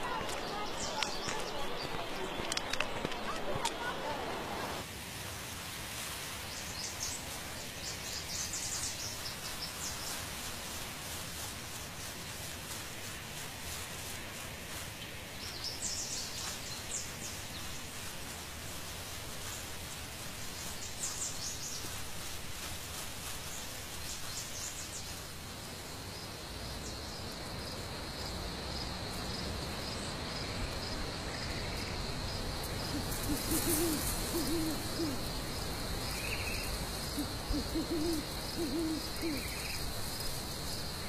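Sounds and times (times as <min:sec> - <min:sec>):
crickets chirping: 0:00.0 - 0:04.8, 0:15.4 - 0:41.0
owl hooting: 0:32.8 - 0:35.4, 0:36.6 - 0:39.8.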